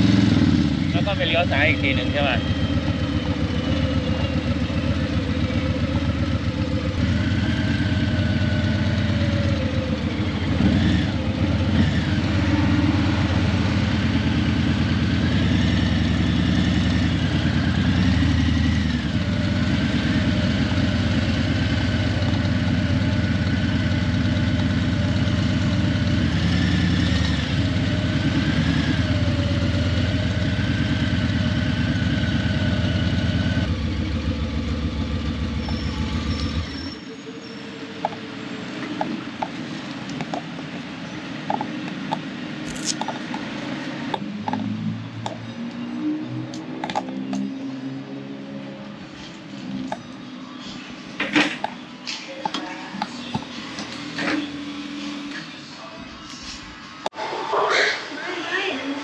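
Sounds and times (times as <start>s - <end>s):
motorcycle engine running: 0.0s - 36.9s.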